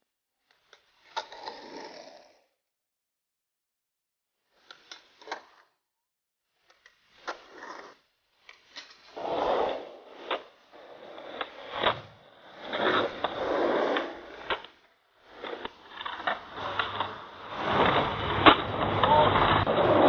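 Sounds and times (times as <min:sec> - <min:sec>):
skateboard wheels rolling: 0:00.9 - 0:02.3, 0:06.7 - 0:08.0, 0:08.6 - 0:20.0
skateboard clacking on ground: 0:08.7 - 0:20.0.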